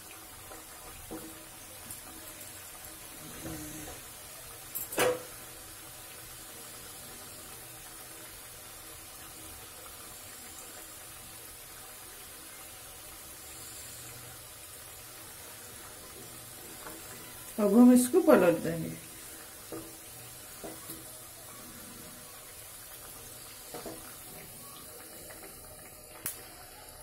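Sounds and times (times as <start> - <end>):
food sizzling in hot oil: 0.0 - 27.0.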